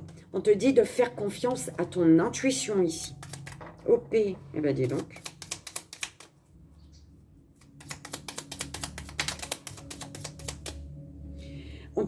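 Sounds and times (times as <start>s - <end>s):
cards being shuffled: 3.1s - 3.6s, 4.8s - 6.4s, 7.6s - 10.9s.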